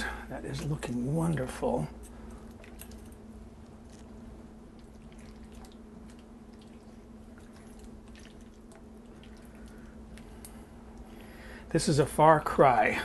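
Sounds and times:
steady low hum: 0:00.0 - 0:13.0
sauce squishing while stirred: 0:02.0 - 0:11.4.

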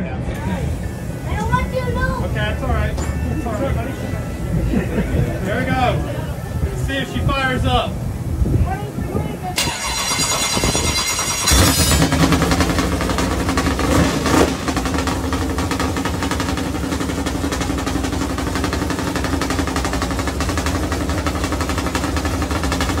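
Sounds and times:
race engine revving and idling: 0:09.2 - 0:23.0.

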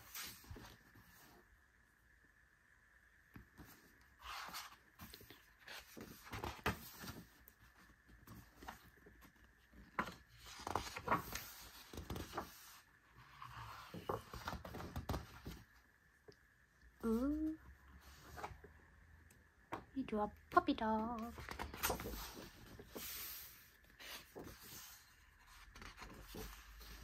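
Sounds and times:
book pages turning: 0:03.4 - 0:15.8, 0:21.2 - 0:27.0.

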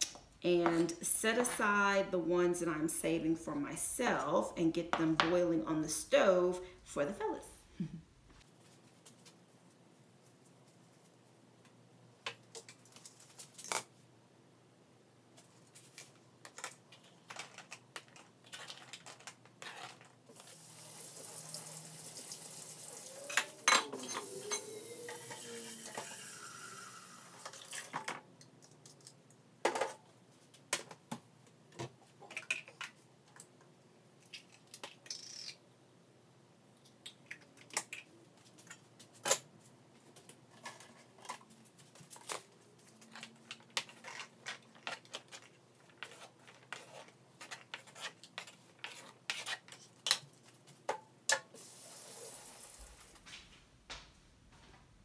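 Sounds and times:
water running from tap: 0:20.3 - 0:23.7, 0:24.6 - 0:27.9, 0:51.6 - 0:53.1.

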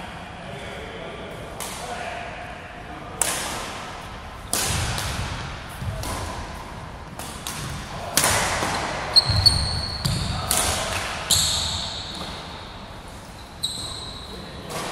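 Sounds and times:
racket hitting shuttlecock: 0:03.2 - 0:12.6
sneakers squeaking on court floor: 0:08.6 - 0:10.5, 0:11.2 - 0:14.6.

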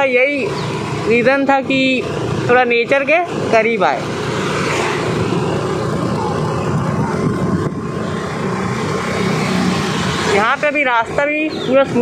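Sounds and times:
engine running: 0:00.0 - 0:12.0
wind rushing over microphone: 0:03.3 - 0:12.0.

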